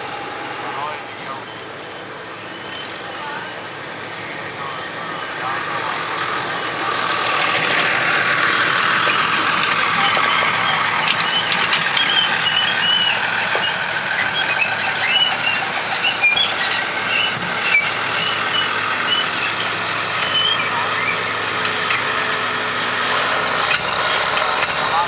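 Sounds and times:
forage harvester running: 0.0s - 25.0s
tractor diesel engine running: 0.0s - 25.0s
short high-pitched squeaks: 8.4s - 24.8s.

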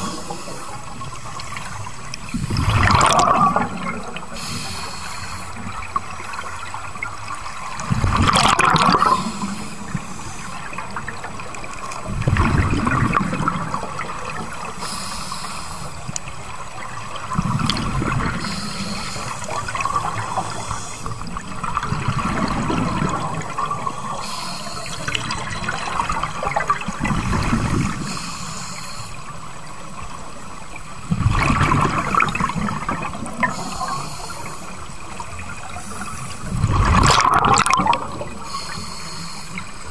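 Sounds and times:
bubbling regulator exhalations: 2.3s - 4.6s, 7.9s - 9.6s, 36.5s - 38.5s
hissing regulator inhalations: 4.3s - 6.4s, 9.1s - 10.8s, 14.7s - 16.2s, 18.4s - 21.3s, 24.2s - 25.3s, 28.0s - 29.4s, 33.4s - 35.0s, 38.4s - 39.9s.

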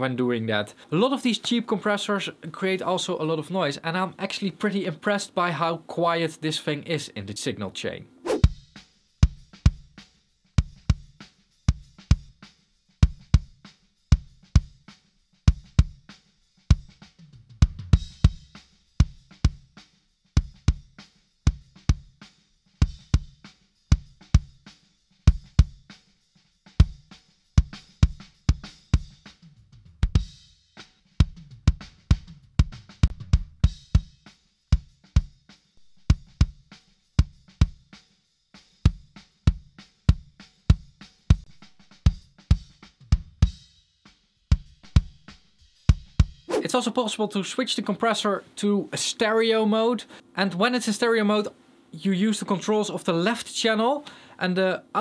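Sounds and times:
drum kit playing a beat: 8.3s - 47.2s.

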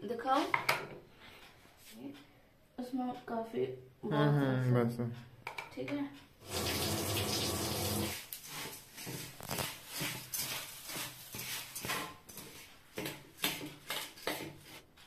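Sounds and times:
tap water running into sink: 6.4s - 8.2s
puffed rice rustling in bowl: 8.1s - 12.5s.

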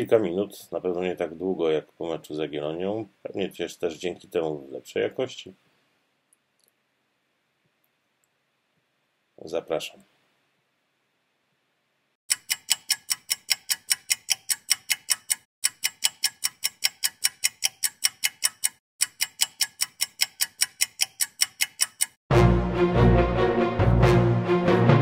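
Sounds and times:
clock-like ticking: 12.3s - 22.2s
music: 22.3s - 25.0s.

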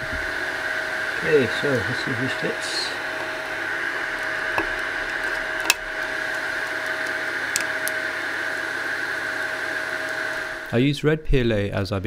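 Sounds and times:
printer whirring and humming: 0.0s - 10.7s.

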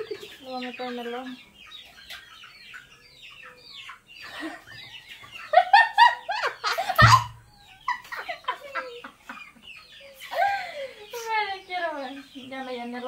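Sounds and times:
young women laughing: 4.2s - 11.3s
low thump: 7.0s - 7.4s.

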